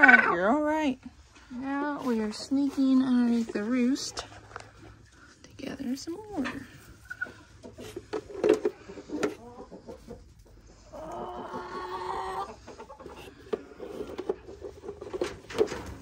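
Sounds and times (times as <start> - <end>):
hens clucking: 0.0 - 5.4, 6.0 - 16.0.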